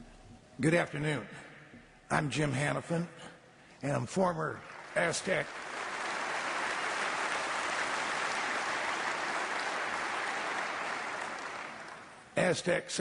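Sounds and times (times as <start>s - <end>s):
large audience applauding: 4.5s - 12.4s.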